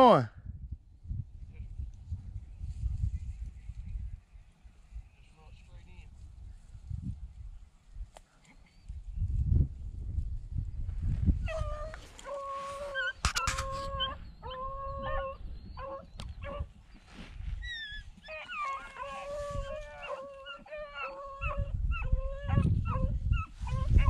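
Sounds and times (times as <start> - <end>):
hounds baying: 11.4 - 17.0, 17.6 - 24.0.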